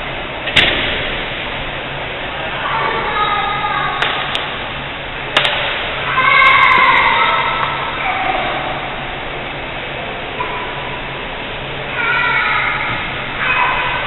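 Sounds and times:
racket striking shuttlecock: 5.3 - 5.9.

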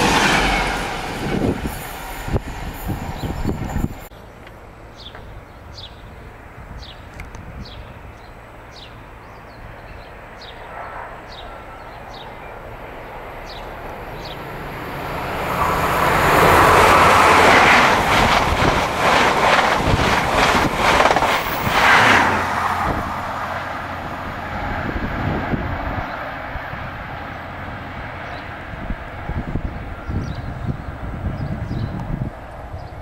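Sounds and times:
train passing at speed: 0.0 - 6.7, 8.0 - 33.0
train wheel beats: 15.6 - 22.2.

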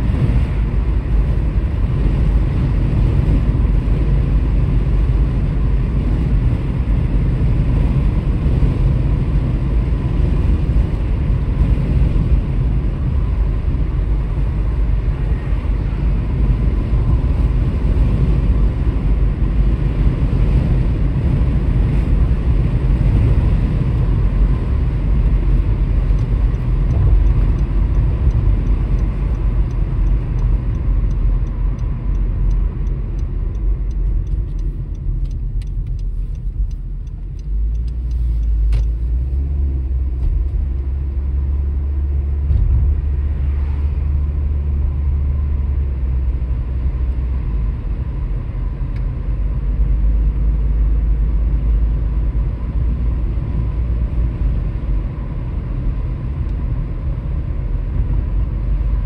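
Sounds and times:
car road noise rumble: 0.0 - 59.0
light fast ticking: 26.1 - 38.6.

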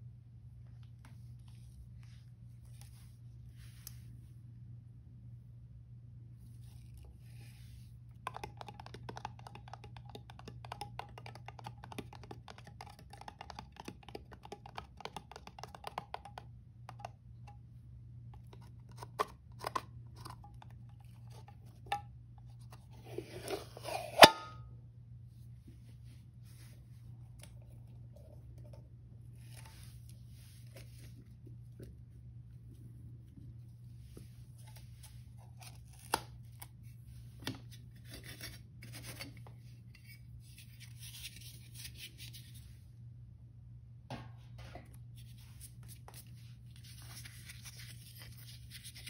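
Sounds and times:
fingers tapping on cardboard can: 8.2 - 17.2.

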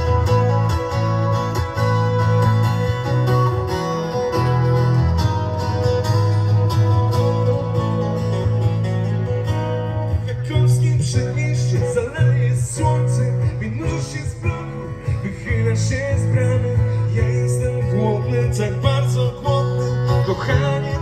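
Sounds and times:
band music with guitar and bass: 0.0 - 21.0
person singing: 10.1 - 21.0.

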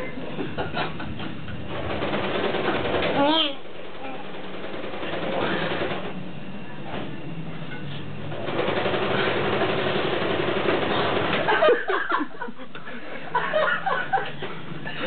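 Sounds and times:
people chuckling and laughing: 0.0 - 1.4, 11.3 - 15.0.

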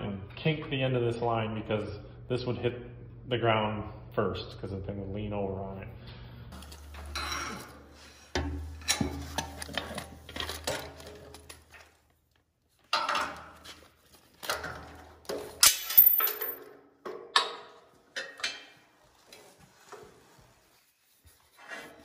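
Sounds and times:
metal tools clinking and rattling: 15.6 - 16.7.

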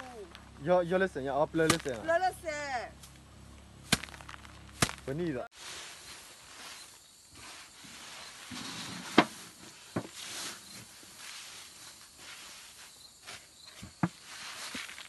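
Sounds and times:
rice grain rustling: 3.8 - 15.0.

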